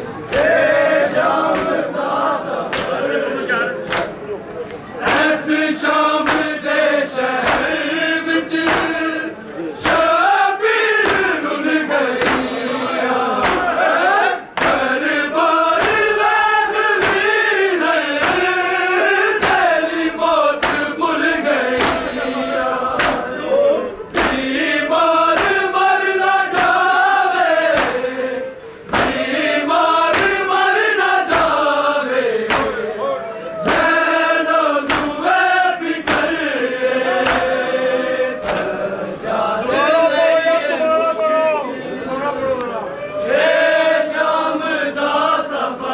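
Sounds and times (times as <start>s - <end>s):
men chanting in unison: 0.0s - 3.9s, 5.0s - 42.5s, 43.3s - 45.9s
chest beating slaps: 1.5s - 1.8s, 6.2s - 6.6s, 7.4s - 7.8s, 8.6s - 9.0s, 9.8s - 10.1s, 11.0s - 11.4s, 12.2s - 12.6s, 13.4s - 13.8s, 14.6s - 14.9s, 15.8s - 16.1s, 17.0s - 17.3s, 18.2s - 18.5s, 19.4s - 19.7s, 20.6s - 21.0s, 21.7s - 22.2s, 22.9s - 23.4s, 24.1s - 24.5s, 25.3s - 25.6s, 26.5s - 26.9s, 27.7s - 28.0s, 28.9s - 29.3s, 30.1s - 30.4s, 31.3s - 31.6s, 32.5s - 32.8s, 33.6s - 34.0s, 34.8s - 35.2s, 36.0s - 36.4s, 37.2s - 37.6s, 38.4s - 38.7s.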